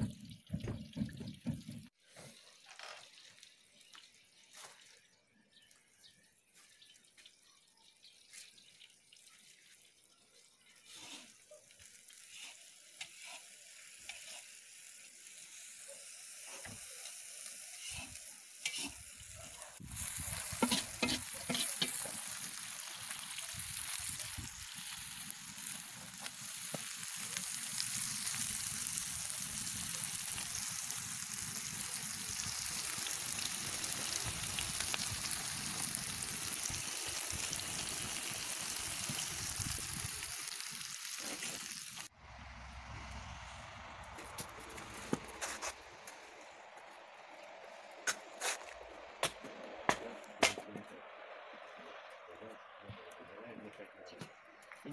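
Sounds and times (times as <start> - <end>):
onions sizzling in oil: 10.6 - 42.1.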